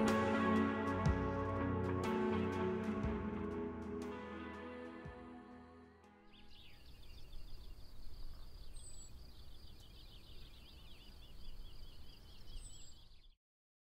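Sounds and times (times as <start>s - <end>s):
birds chirping: 6.2s - 13.4s.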